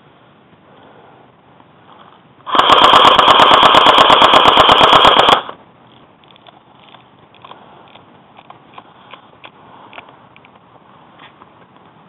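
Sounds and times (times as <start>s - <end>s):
airsoft rifle full-auto burst: 2.5s - 5.6s.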